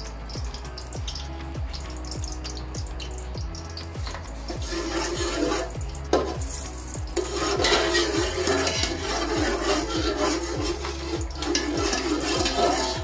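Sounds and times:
background music: 0:00.0 - 0:13.0
metal spoon scraping a pot: 0:03.8 - 0:13.0.

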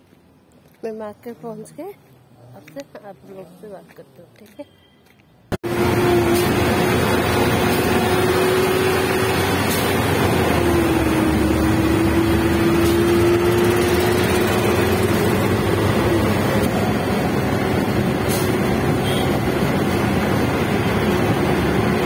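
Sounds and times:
wind and road noise: 0:00.0 - 0:22.0
small engine running: 0:05.7 - 0:18.1.

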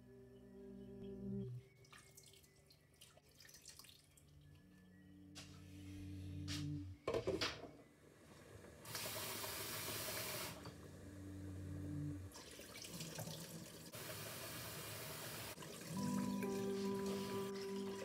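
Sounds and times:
tap water running into bowl: 0:12.3 - 0:14.0.

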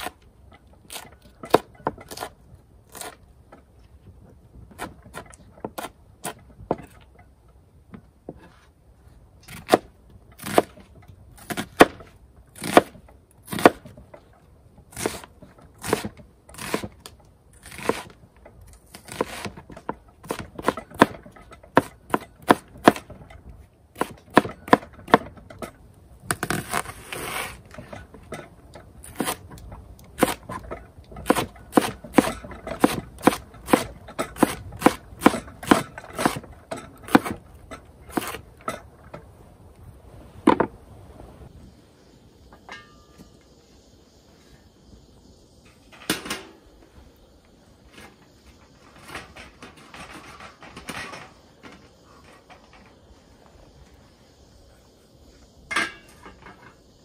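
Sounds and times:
knife scraping board: 0:26.4 - 0:27.8.

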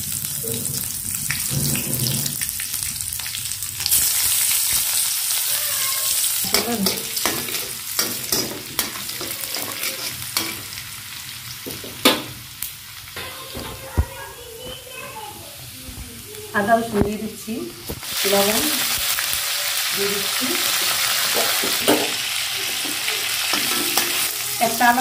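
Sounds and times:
onion sizzling in hot oil: 0:00.0 - 0:25.0
utensil scraping a wok: 0:00.5 - 0:02.5, 0:06.1 - 0:10.9, 0:20.6 - 0:24.4.

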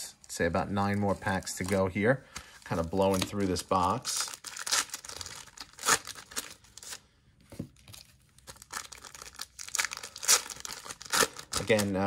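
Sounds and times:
wrapper crinkling and tearing: 0:00.3 - 0:07.0, 0:07.9 - 0:12.0.

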